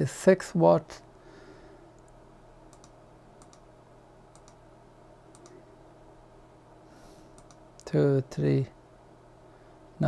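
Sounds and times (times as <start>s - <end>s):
low steady hum: 0.0s - 10.0s
control clicking: 2.0s - 3.7s, 4.3s - 4.6s, 5.3s - 5.6s, 7.4s - 7.6s.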